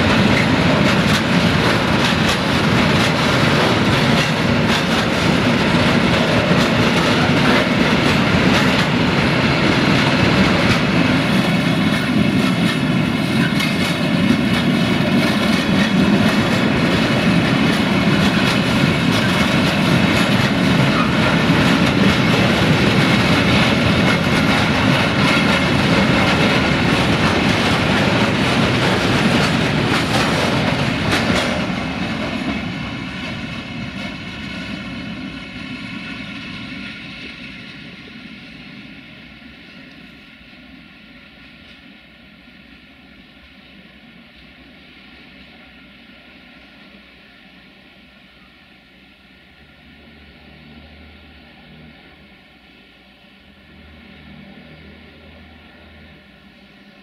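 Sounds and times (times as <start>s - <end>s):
freight train wheels rumbling on rails: 0.0s - 57.0s.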